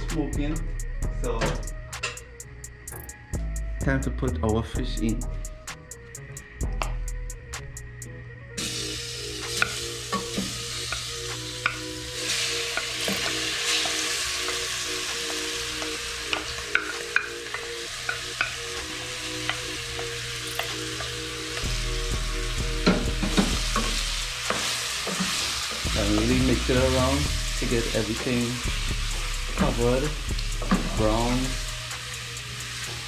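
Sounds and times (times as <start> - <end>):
fish sizzling in hot oil: 8.6 - 33.0.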